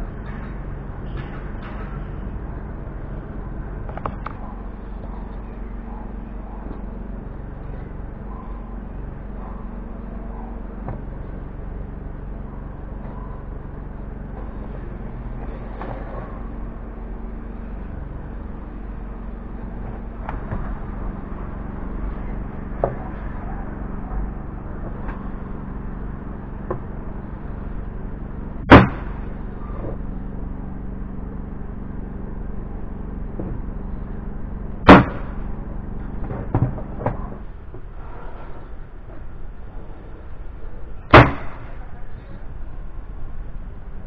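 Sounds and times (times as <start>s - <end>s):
steady low hum: 0.0s - 44.0s
nail gun firing: 41.1s - 41.6s.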